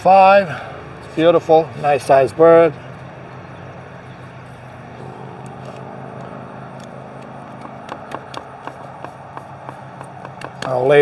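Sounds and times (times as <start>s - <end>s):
low motor hum: 4.2s - 10.4s.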